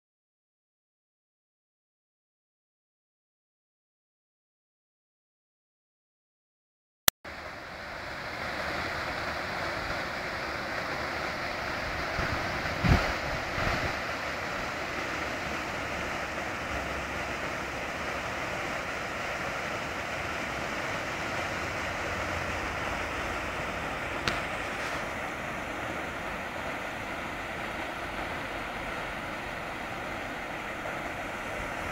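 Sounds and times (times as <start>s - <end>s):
water rushing over a weir: 7.3s - 31.9s.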